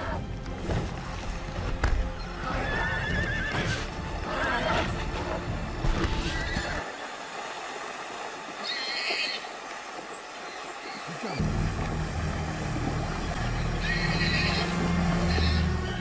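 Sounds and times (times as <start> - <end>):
horses whinnying and squealing: 2.2 - 6.9, 8.6 - 9.5, 13.6 - 16.0.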